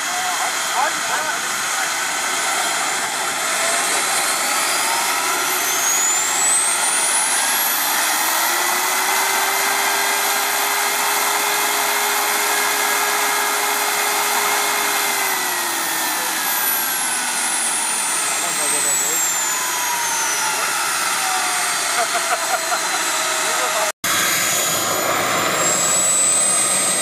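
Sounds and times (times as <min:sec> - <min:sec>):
propeller tone: 0:00.0 - 0:27.0
turbine engine whine: 0:00.0 - 0:27.0.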